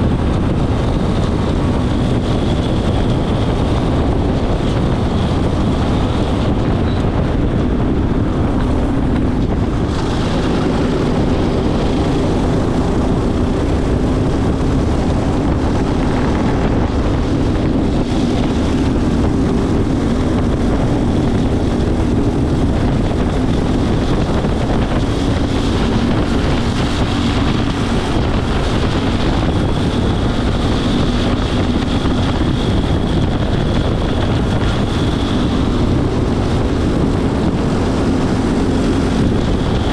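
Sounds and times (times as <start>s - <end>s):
go-kart engine racing: 0.0s - 39.9s
wind buffeting microphone: 0.0s - 39.9s.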